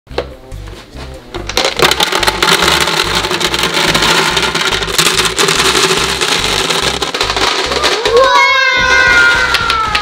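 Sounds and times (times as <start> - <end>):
gumballs rattling into globe: 1.5 - 10.0.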